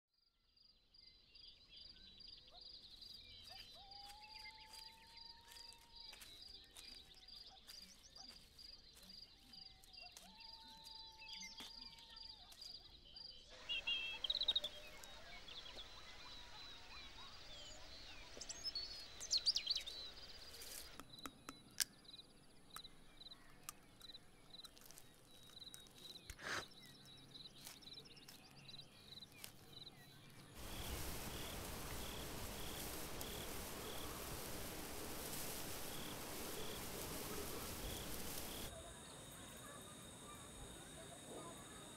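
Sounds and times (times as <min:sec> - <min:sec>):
birds calling: 0:09.7 - 0:41.9
steady background hiss: 0:30.6 - 0:38.8
insect chirping: 0:30.6 - 0:41.9.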